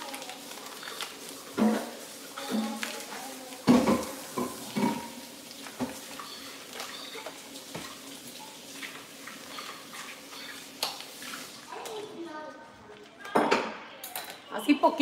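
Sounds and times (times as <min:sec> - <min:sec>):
paper wrapper rustling: 0:00.0 - 0:04.2.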